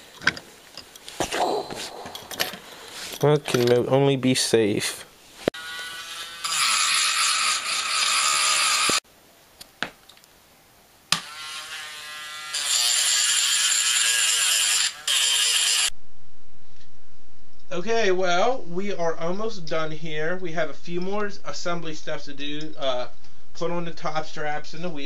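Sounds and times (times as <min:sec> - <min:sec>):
electric power tool whining: 0:05.6 - 0:09.0.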